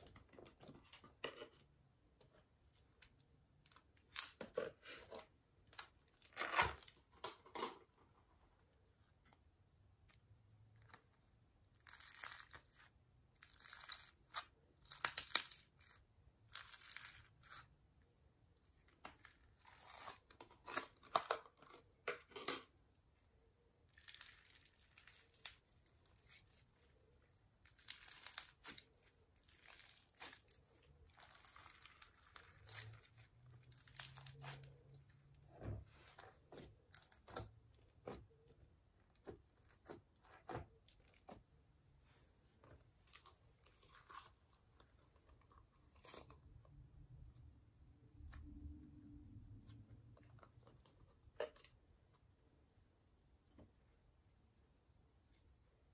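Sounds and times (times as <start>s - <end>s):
slime crackling and popping: 27.7s - 28.8s.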